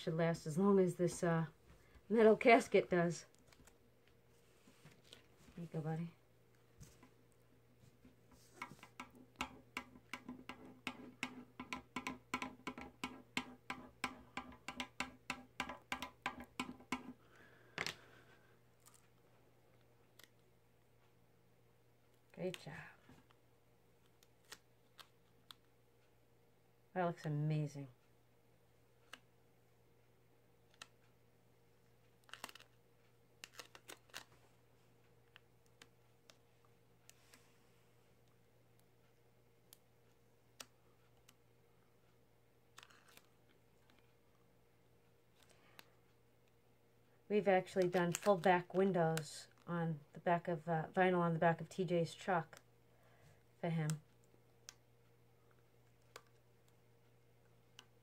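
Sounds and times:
faint steady hum: 0.0 - 58.0
faint clicks and crackles of tape: 3.3 - 4.2, 15.6 - 21.2, 24.0 - 26.2, 29.0 - 29.4, 30.0 - 31.2, 31.8 - 44.4, 45.0 - 50.5, 53.6 - 58.0.

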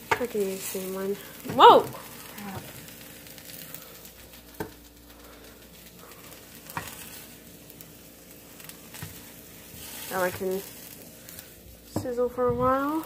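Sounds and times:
apples sizzling in a pan: 0.0 - 13.0.

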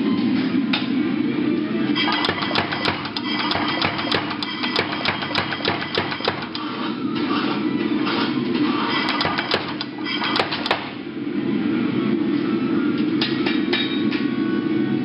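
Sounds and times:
steady hum: 0.0 - 13.3
power hammer striking steel: 2.0 - 6.7, 9.0 - 10.9.

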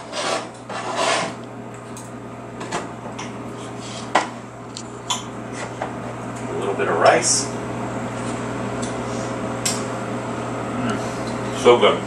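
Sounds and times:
knife and fork scraping plate: 0.0 - 1.4.

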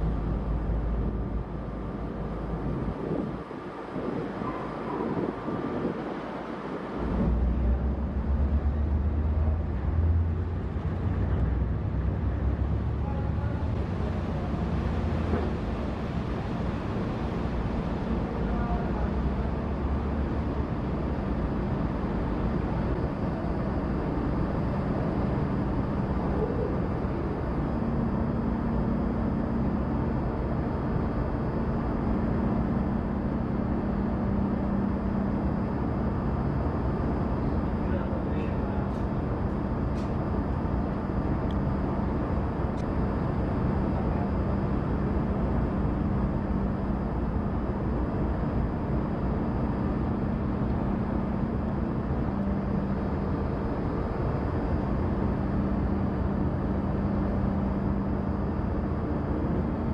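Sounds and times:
low drone of ship engines: 0.0 - 59.9
steady hum: 0.0 - 59.9.

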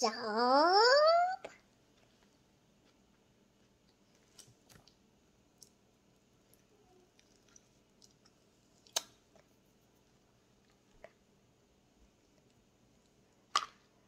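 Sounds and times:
child eating wet mouth sounds: 6.4 - 11.3.

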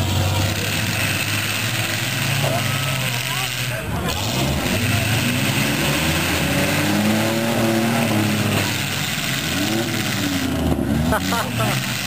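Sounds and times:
car engines revving hard: 0.0 - 12.0.

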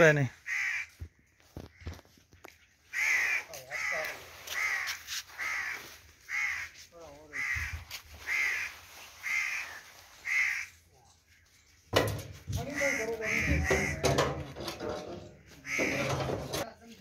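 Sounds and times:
crow cawing: 0.4 - 1.0, 2.9 - 10.7, 12.5 - 14.2, 15.6 - 16.5.

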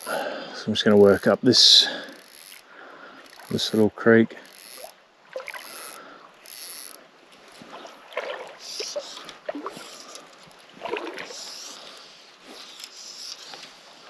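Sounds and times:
fly line swishing: 4.6 - 14.0
light splashes on water: 7.6 - 9.9.

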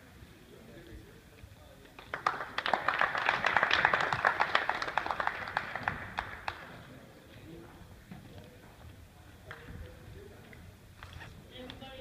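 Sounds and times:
small crowd clapping: 1.8 - 7.0, 9.4 - 10.0.

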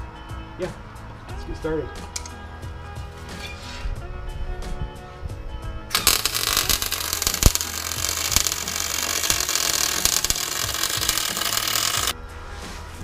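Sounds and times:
sharp welding crack: 5.9 - 12.2
welding arc crackling and hissing: 5.9 - 12.2.

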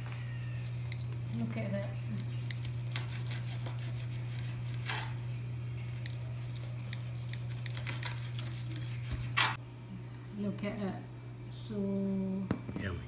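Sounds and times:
steady low hum: 0.0 - 13.0
knife cutting meat on board: 2.9 - 5.2.

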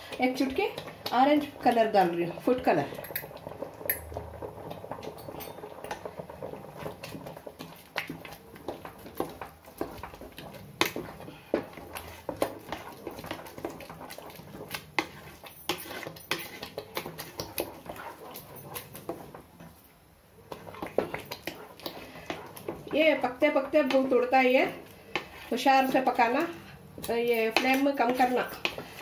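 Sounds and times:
thick mixture bubbling: 0.0 - 29.0
wooden spatula scraping metal pot: 4.5 - 19.8, 20.4 - 29.0.

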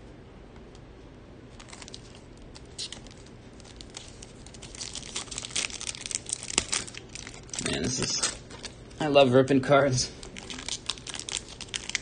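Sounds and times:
plastic wrapper crinkling and tearing: 1.5 - 9.0, 10.2 - 12.0.

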